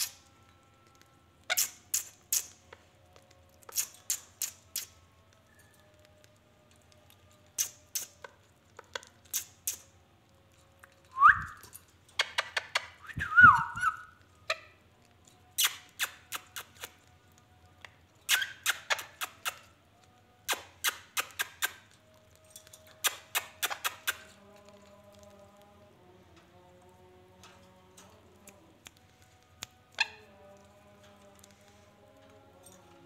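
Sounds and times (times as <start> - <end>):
parakeets clicking: 0.9 - 5.0, 10.8 - 13.0, 17.8 - 19.7, 20.5 - 25.6
parakeet whistles: 18.3 - 19.6.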